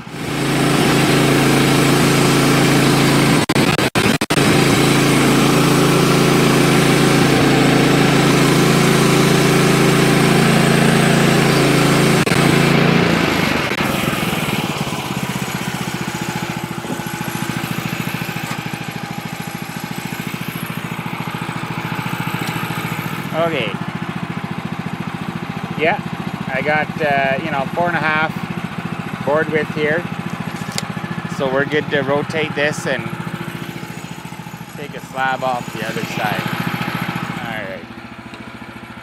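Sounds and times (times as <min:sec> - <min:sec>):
sawmill engine running: 0:00.0 - 0:39.0
band blade cutting log: 0:15.5 - 0:19.0, 0:30.2 - 0:30.9, 0:32.6 - 0:37.4.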